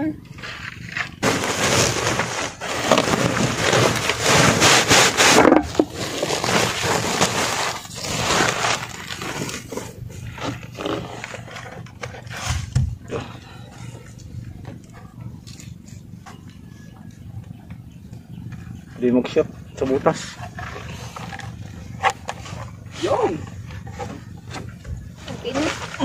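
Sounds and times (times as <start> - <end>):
plastic sack and net rustling: 0.4 - 13.5, 20.6 - 26.0.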